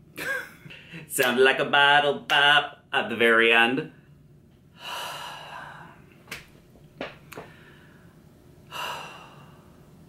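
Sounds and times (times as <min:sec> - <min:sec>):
man gasping breaths: 0:04.8 - 0:06.0, 0:07.4 - 0:09.9.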